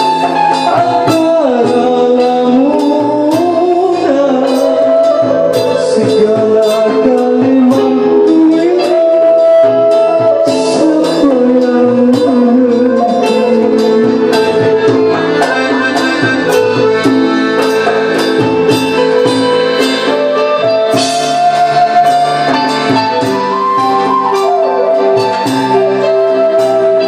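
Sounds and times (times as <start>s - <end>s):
accordion melody: 0.0s - 27.0s
drum kit beat: 0.0s - 27.0s
hand drums: 0.0s - 27.0s
keyboard: 0.0s - 27.0s
strings: 9.7s - 27.0s.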